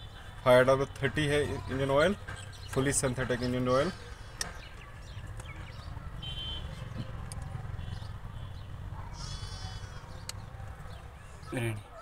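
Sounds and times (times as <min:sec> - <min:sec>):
animal bleating: 0:09.1 - 0:10.2.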